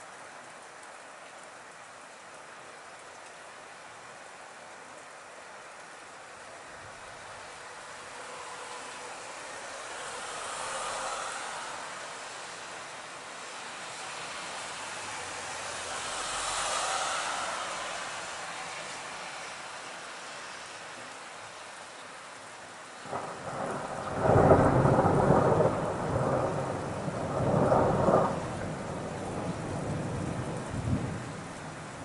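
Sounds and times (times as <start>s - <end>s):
rain hissing: 0.0s - 32.0s
thunder rumbling: 23.1s - 32.0s.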